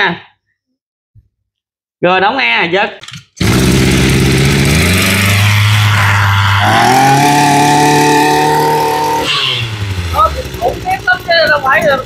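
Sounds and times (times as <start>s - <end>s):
brush cutter engine starting and running: 3.4s - 12.0s.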